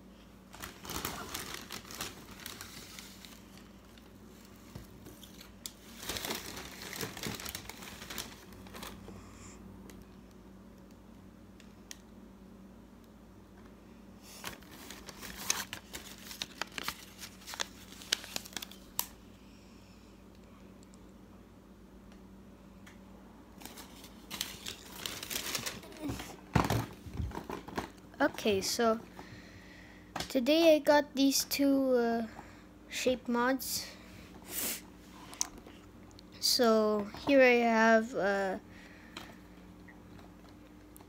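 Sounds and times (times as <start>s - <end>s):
plastic bag crinkling: 0.5s - 9.0s, 14.4s - 19.2s, 23.6s - 27.9s.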